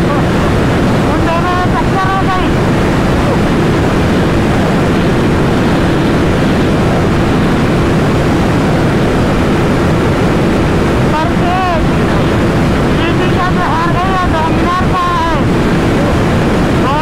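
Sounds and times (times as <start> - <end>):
wind rush on microphone: 0.0 - 17.0.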